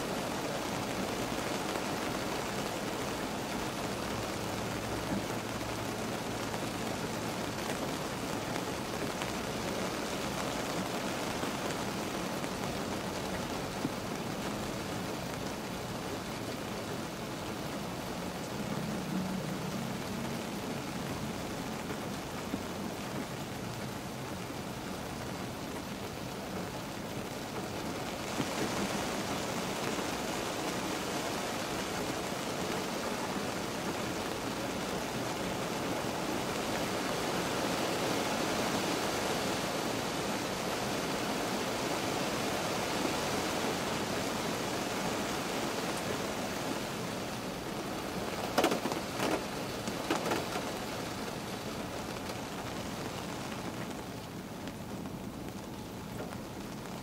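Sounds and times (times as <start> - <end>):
rain on car roof: 0.0 - 57.0.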